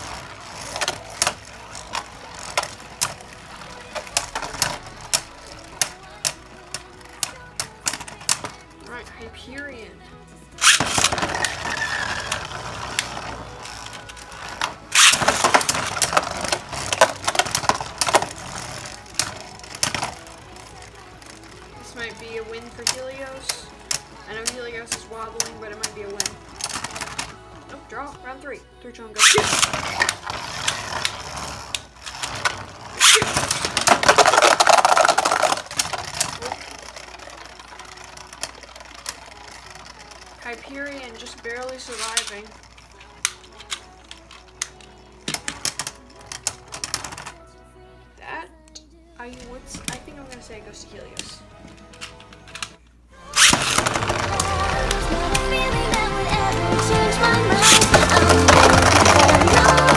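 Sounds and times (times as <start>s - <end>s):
spinning tops clashing clacks: 0.0s - 8.8s, 10.6s - 27.5s, 29.2s - 47.4s, 51.2s - 59.9s
spinning top whirring on plastic: 0.0s - 9.3s, 10.6s - 28.1s, 29.2s - 47.4s, 49.4s - 59.9s
clicks: 0.0s - 9.7s, 29.2s - 47.4s, 48.6s - 59.9s
top launcher rip and clatter: 10.6s - 21.5s, 29.2s - 40.2s, 53.4s - 56.1s, 57.5s - 59.9s.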